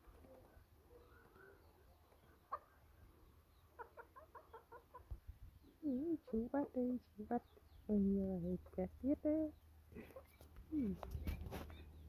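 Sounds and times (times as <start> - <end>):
chicken clucking softly: 0.2 - 6.5
chicken calling: 2.3 - 2.9, 3.6 - 5.2.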